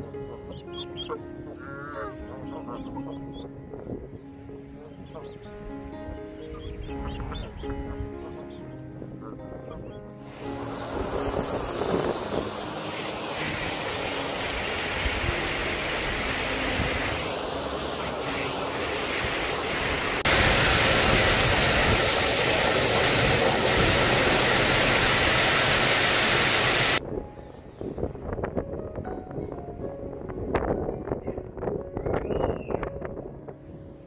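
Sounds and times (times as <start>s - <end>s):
waterfall rushing: 10.3s - 27.0s.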